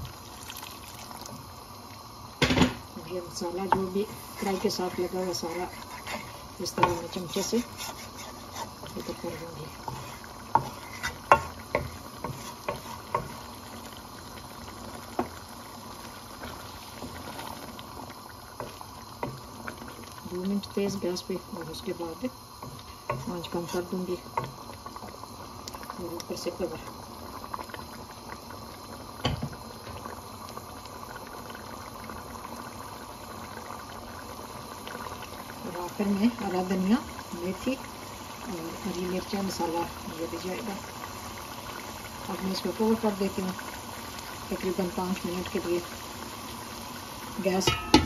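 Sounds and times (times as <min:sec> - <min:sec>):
gravy bubbling: 0:00.0 - 0:48.0
wooden spoon knocking metal pot: 0:47.6 - 0:48.0.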